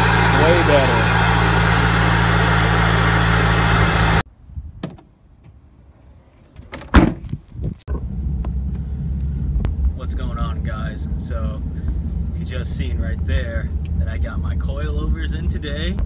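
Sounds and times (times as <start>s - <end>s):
car engine idling: 0.0s - 4.2s, 7.9s - 16.0s
trunk lid shutting thump: 4.8s - 5.6s, 6.7s - 8.1s
low engine hum inside cabin: 7.9s - 16.0s.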